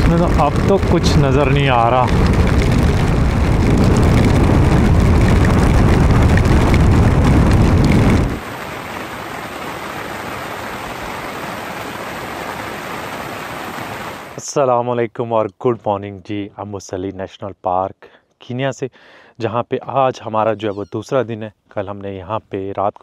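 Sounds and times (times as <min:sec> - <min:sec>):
motorcycle rumbling: 0:00.0 - 0:08.4
rain falling: 0:00.0 - 0:14.4.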